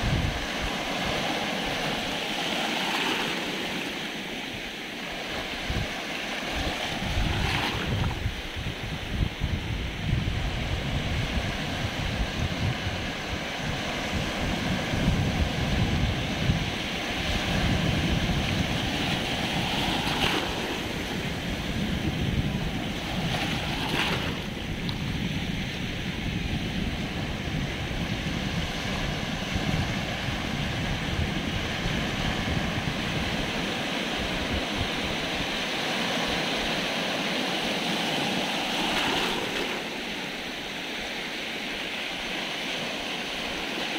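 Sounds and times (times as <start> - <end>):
wind buffeting microphone: 0.0 - 2.4, 5.1 - 37.0
waves washing over rocks: 0.0 - 43.9.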